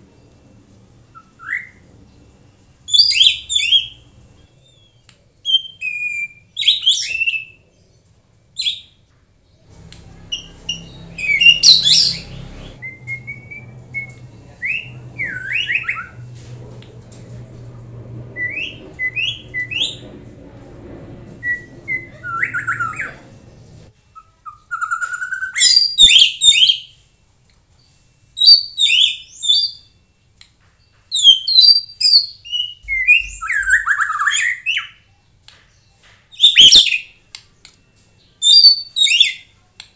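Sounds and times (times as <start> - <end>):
faint low hum: 0.0 - 25.6
bird singing whistles: 2.9 - 7.6, 10.3 - 16.4, 18.4 - 20.0, 21.4 - 23.2, 24.1 - 27.0, 28.4 - 30.0, 31.1 - 35.1, 35.9 - 37.2, 38.2 - 39.5.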